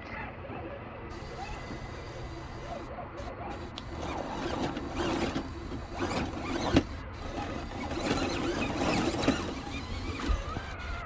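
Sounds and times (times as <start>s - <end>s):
small electric motor and gears: 1.1s - 11.0s
chassis creaks and clicks on rock: 3.5s - 11.0s.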